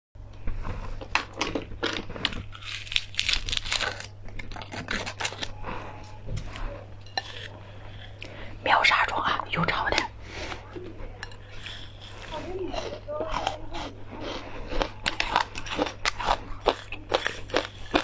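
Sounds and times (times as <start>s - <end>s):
low steady hum: 0.2s - 18.0s
candy crunching: 0.8s - 5.6s, 11.2s - 18.0s
candy wrapper crinkling: 1.8s - 5.5s.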